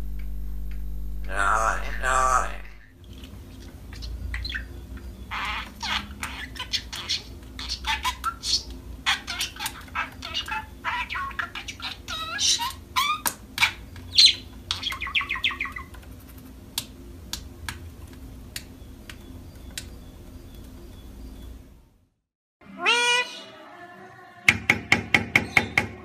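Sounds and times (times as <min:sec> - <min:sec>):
parrot chirping and whistling: 0:03.9 - 0:15.9, 0:22.8 - 0:23.5
rising meow-like parrot call: 0:22.7 - 0:23.8.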